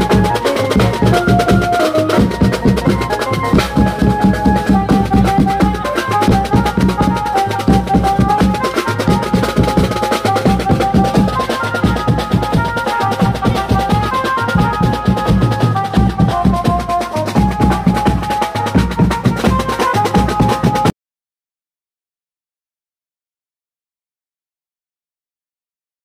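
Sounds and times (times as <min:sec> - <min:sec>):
banjo melody: 0:00.0 - 0:20.9
bass drums and side drums: 0:00.0 - 0:20.9.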